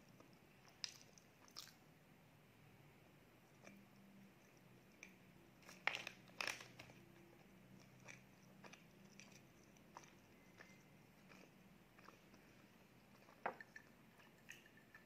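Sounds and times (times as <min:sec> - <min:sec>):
soft chewing: 0:00.0 - 0:01.9, 0:03.3 - 0:15.0
muffin crunching: 0:05.0 - 0:14.0.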